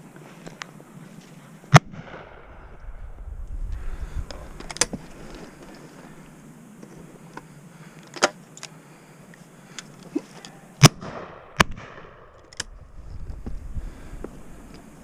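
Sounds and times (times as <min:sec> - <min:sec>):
close shotgun shots with echo: 0:10.8 - 0:12.3
distant gunshots: 0:10.8 - 0:12.3.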